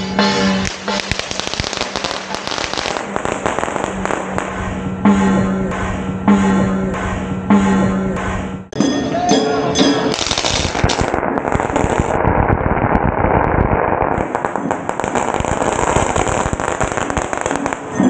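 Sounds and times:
firecrackers crackling: 0.0s - 5.1s, 10.1s - 18.0s.

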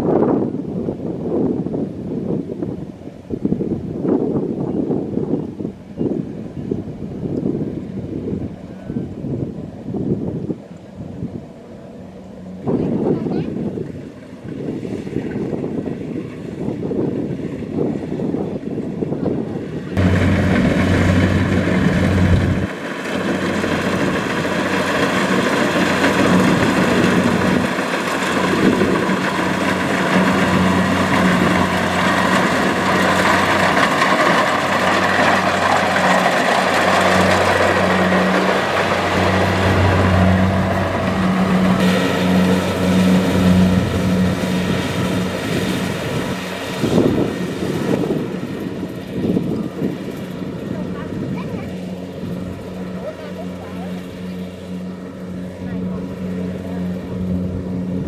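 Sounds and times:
diesel engine hum: 0.0s - 58.0s
cutting and threshing gear rush: 20.0s - 54.4s.

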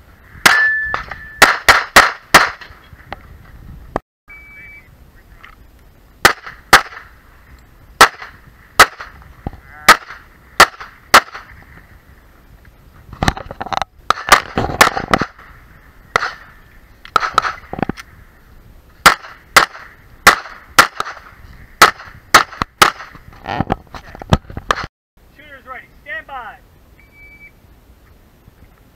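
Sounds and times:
pistol shots: 0.4s - 2.7s, 6.2s - 7.1s, 8.0s - 9.2s, 9.9s - 11.5s, 14.1s - 15.4s, 16.1s - 16.5s, 17.1s - 17.7s, 19.0s - 23.2s.

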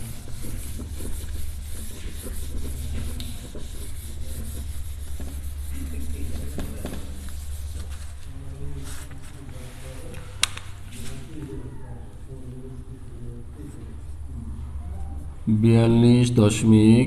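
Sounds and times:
scratchy handwriting strokes: 0.0s - 10.1s
steady low hum: 0.0s - 17.0s.

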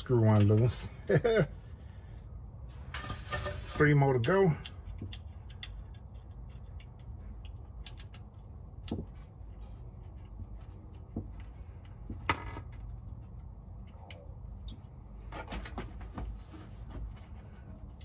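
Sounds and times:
screwdriver clicking and tapping: 4.9s - 9.2s.

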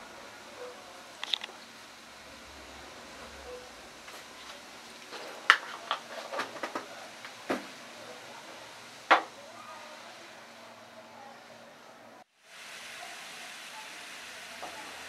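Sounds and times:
faint steady hiss: 0.0s - 15.0s
frying pan knocking on burner grate: 5.2s - 7.8s.

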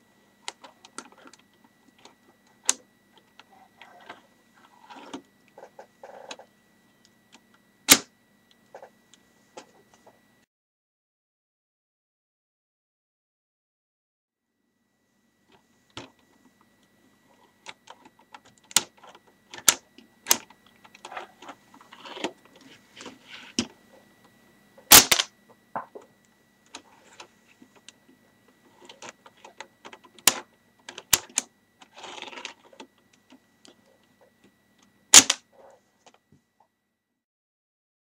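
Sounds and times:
sharp plastic snaps: 24.9s - 25.3s, 35.1s - 35.4s
plastic parts clicking and sliding: 28.7s - 33.8s.

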